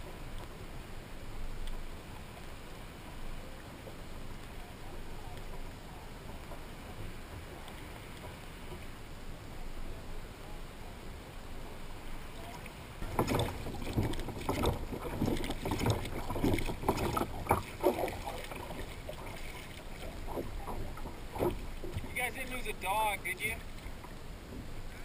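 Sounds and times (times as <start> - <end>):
wind and water noise: 0.0 - 25.0
water slapping against hull: 12.4 - 25.0.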